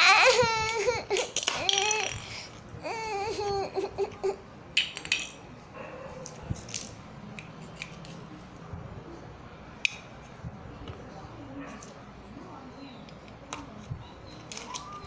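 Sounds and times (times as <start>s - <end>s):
plastic toys clacking: 0.6s - 2.6s, 4.8s - 5.5s, 6.2s - 8.2s, 13.1s - 15.0s.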